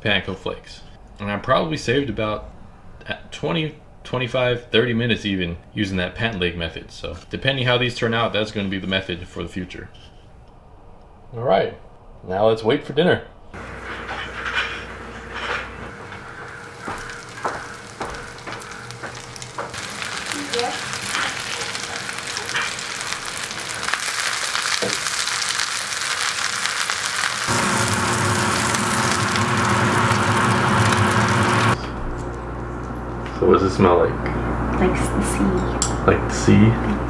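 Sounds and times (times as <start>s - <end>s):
food sizzling in a pan: 13.6s - 31.8s.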